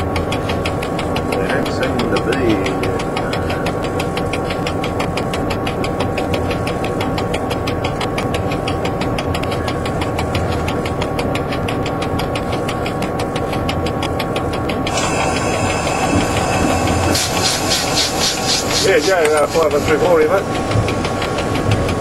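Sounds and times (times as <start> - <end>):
fast regular ticking: 0.0 - 22.0
train engine running: 0.0 - 22.0
air hiss: 14.9 - 21.8.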